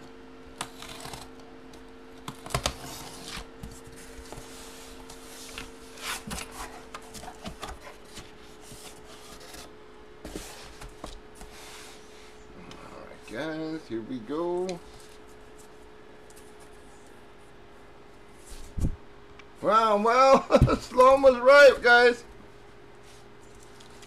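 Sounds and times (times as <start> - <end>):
faint electrical hum: 0.0 - 24.0
hands handling cardboard box: 2.5 - 12.2.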